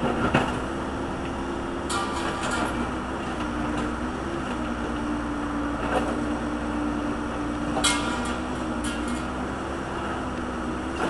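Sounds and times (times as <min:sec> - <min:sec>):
diesel engine under load: 0:00.0 - 0:11.0
metal clank ringing: 0:01.9 - 0:02.8, 0:07.8 - 0:09.4.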